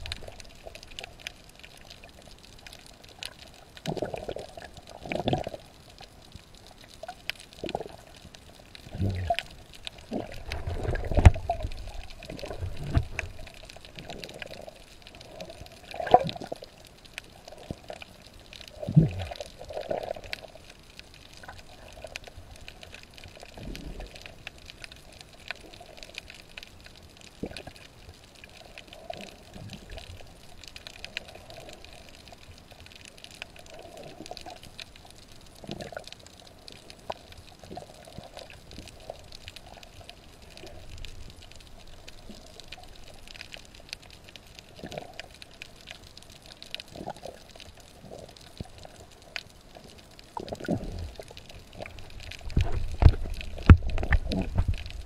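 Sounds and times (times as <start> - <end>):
small clicks underwater: 0.0 - 55.0
water sloshing underwater: 0.0 - 55.0.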